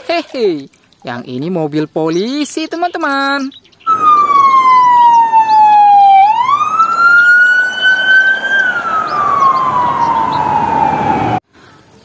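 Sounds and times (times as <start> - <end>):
police siren wailing: 3.9 - 11.4.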